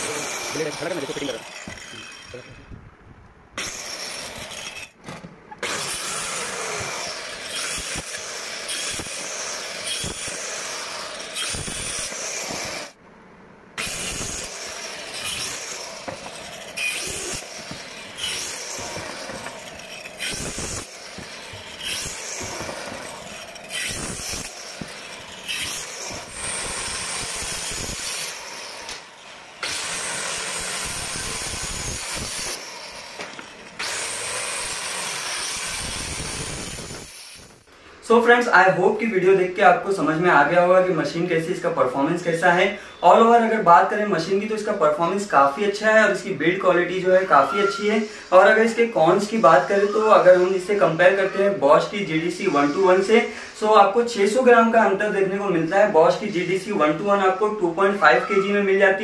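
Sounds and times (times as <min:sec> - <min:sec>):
power cutter cutting wood: 0:00.0 - 0:02.7, 0:03.6 - 0:05.0, 0:05.6 - 0:13.0, 0:13.8 - 0:37.7, 0:43.0 - 0:59.0.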